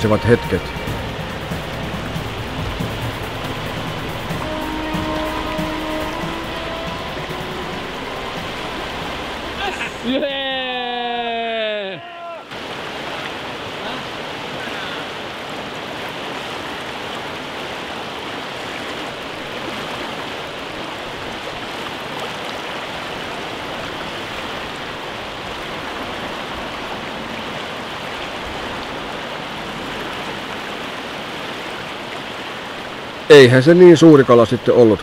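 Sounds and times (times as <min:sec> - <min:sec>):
river rapids rushing: 0:00.0 - 0:35.0.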